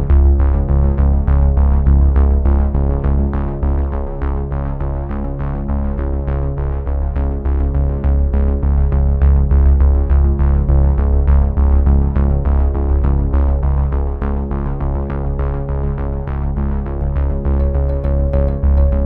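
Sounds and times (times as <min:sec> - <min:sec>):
sustained bass line: 0:00.0 - 0:19.0
steady electronic beat: 0:17.6 - 0:19.0
synthesizer notes: 0:17.6 - 0:19.0.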